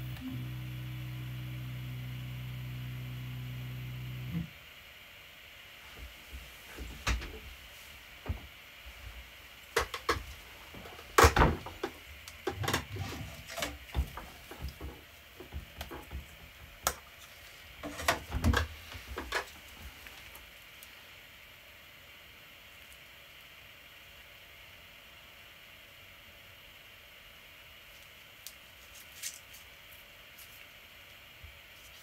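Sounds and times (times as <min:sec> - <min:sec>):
steel sheet handling clicks and knocks: 0:09.7 - 0:17.2, 0:17.8 - 0:19.7.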